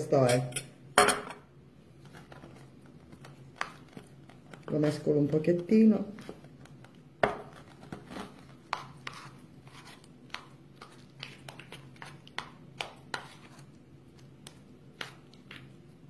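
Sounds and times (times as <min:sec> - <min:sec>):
spoon scraping a bowl: 0:08.0 - 0:10.1.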